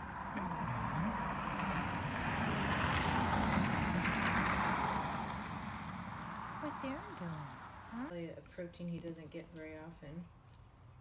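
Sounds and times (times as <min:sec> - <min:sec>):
passing vehicle tyre noise: 0:00.0 - 0:08.1.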